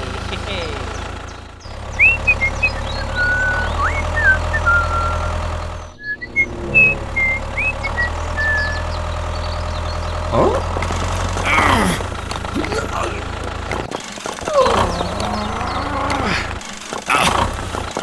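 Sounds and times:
short high chirps: 5.9s - 8.9s
small motor running: 6.8s - 18.0s.

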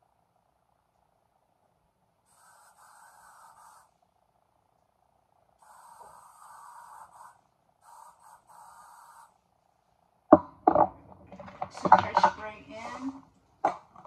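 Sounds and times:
objects set down on hard surface: 10.3s - 12.5s.

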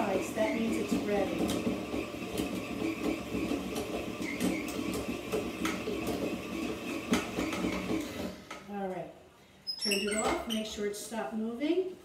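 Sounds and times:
stand mixer motor running: 0.0s - 8.5s.

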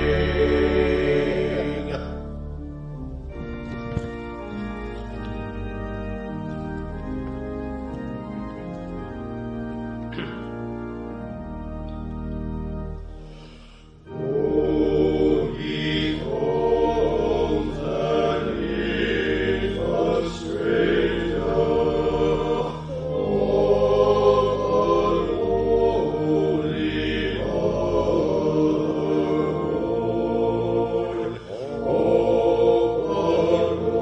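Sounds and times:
electronic organ chord: 0.0s - 34.0s.

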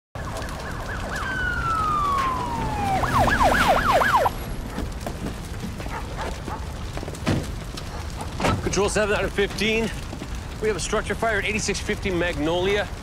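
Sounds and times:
police siren wailing and yelping: 0.2s - 4.8s.

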